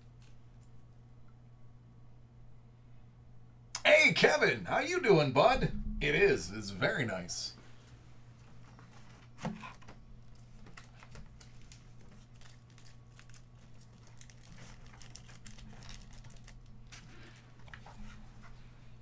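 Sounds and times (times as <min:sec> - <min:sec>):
low electrical hum: 0:00.0 - 0:19.0
cards rustling and clicking: 0:08.8 - 0:18.0.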